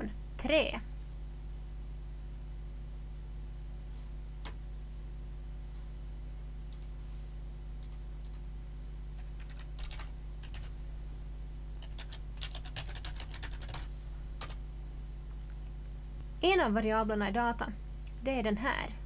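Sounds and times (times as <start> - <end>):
steady low hum: 0.0 - 19.0
typing on computer keyboard: 9.2 - 10.7, 11.8 - 14.6.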